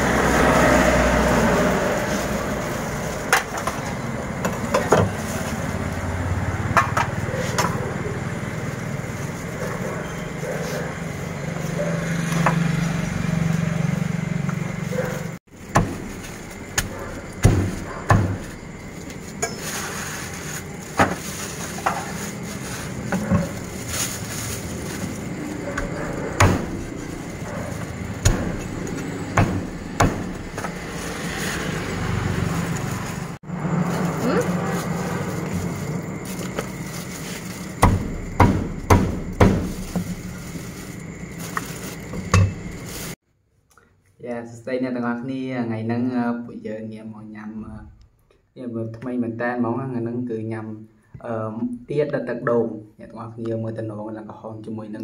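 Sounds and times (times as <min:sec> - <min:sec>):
cleaver chopping on wooden block: 0:29.4 - 0:30.7, 0:37.8 - 0:39.7.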